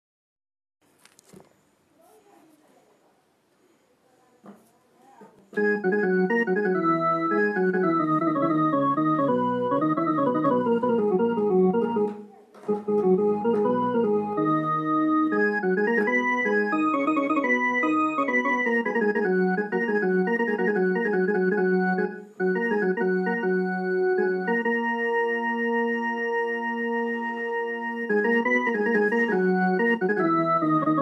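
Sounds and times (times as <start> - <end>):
electronic harmonium melody: 5.5 - 31.0.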